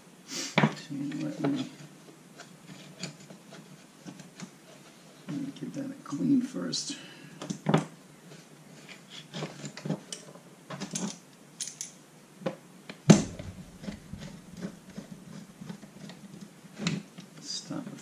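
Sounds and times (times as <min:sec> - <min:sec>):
sharp knock: 0:13.1 - 0:14.8.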